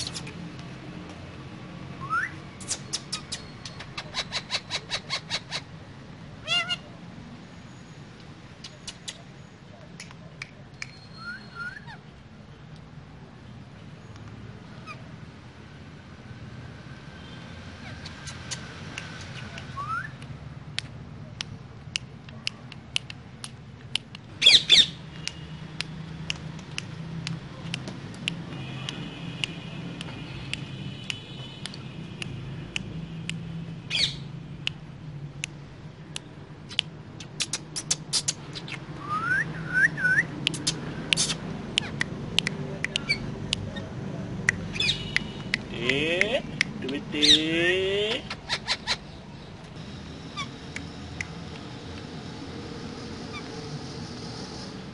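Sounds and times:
parakeets squawking: 0:06.4 - 0:06.9, 0:24.4 - 0:25.0, 0:33.9 - 0:34.3, 0:44.6 - 0:46.2, 0:47.0 - 0:51.1, 0:53.2 - 0:53.7
sharp clicks and taps: 0:18.2 - 0:24.3, 0:25.1 - 0:33.5, 0:35.4 - 0:38.8, 0:40.4 - 0:43.7, 0:44.4 - 0:46.9.

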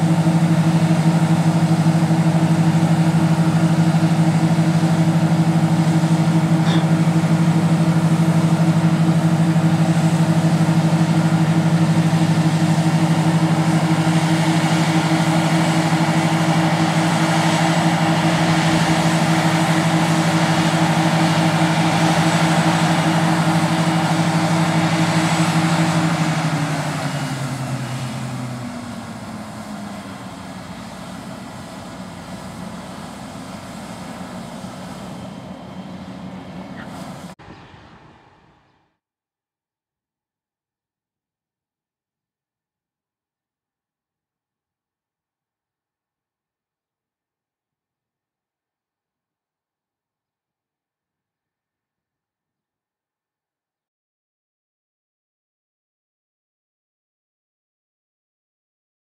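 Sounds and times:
heavy diesel engines running: 0:00.0 - 0:38.7.

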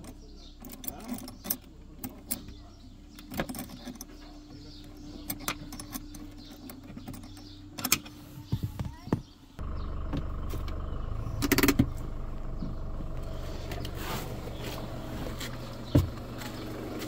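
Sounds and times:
spanner clicking on metal nut: 0:00.0 - 0:02.5.

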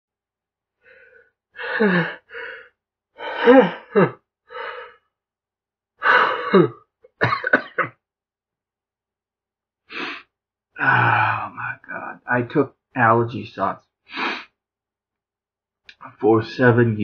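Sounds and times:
breathy gasp: 0:00.8 - 0:05.0, 0:06.0 - 0:06.7, 0:09.9 - 0:11.7, 0:14.1 - 0:14.5
man sneezing: 0:06.0 - 0:07.9.

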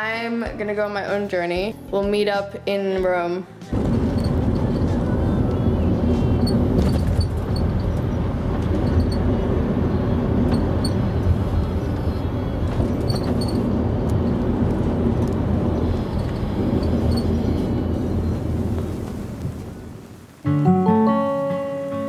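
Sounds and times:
bus engine and road noise: 0:03.6 - 0:20.4.

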